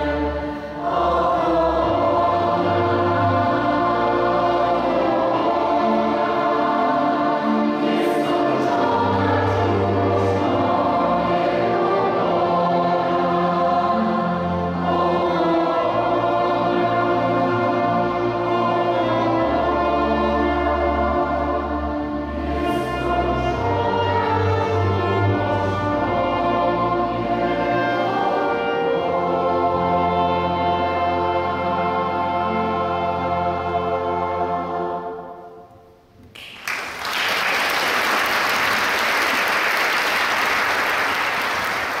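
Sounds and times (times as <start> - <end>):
choir and string ensemble: 0.0 - 42.0
audience applauding: 36.3 - 42.0.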